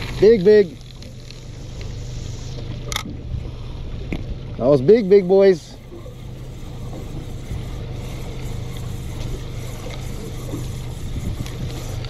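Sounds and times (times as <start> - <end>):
boat engine humming: 0.0 - 12.0
water: 0.0 - 12.0
wind noise: 10.7 - 12.0.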